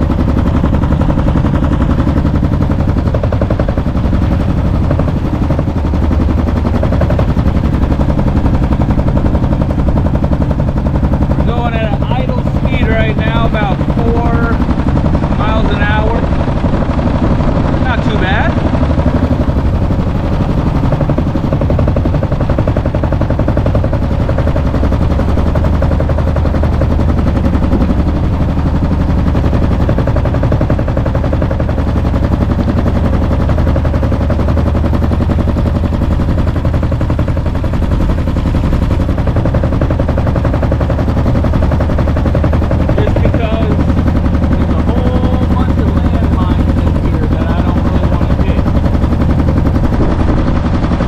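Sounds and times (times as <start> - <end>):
boat engine exhaust putter: 0.0 - 51.0.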